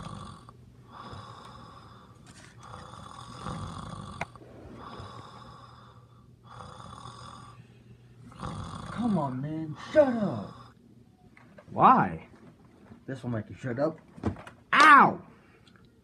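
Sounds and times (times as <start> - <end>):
person snoring loudly: 0.0 - 1.8, 2.6 - 7.6, 8.3 - 9.1.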